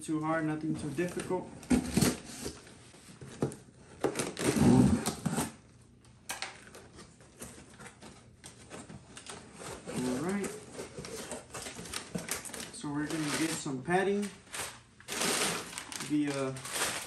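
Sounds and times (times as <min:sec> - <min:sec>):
packing tape ripping: 0:04.0 - 0:05.6, 0:09.2 - 0:17.0.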